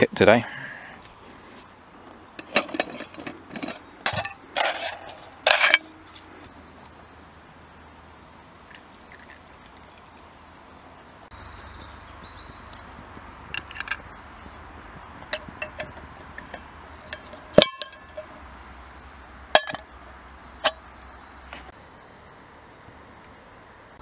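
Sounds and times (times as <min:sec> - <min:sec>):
metal cookware clinking: 0:02.4 - 0:06.2, 0:15.3 - 0:18.3, 0:19.6 - 0:19.9.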